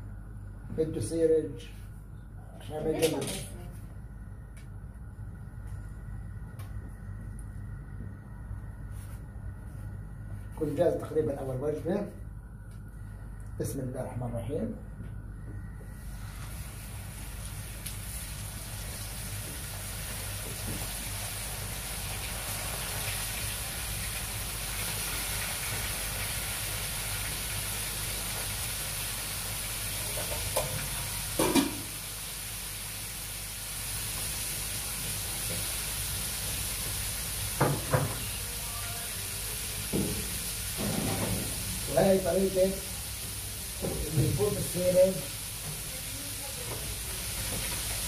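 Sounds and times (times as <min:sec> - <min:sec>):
fish frying in hot oil: 0:16.0 - 0:48.0
knocks in frying pan: 0:31.4 - 0:31.9, 0:37.6 - 0:38.3, 0:39.9 - 0:41.6.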